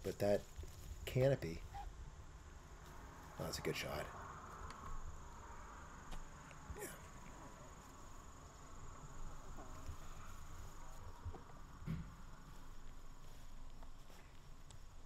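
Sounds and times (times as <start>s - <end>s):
high-pitched insect trill: 0.1s - 15.0s
faint clicks: 4.6s - 5.0s, 13.6s - 15.0s.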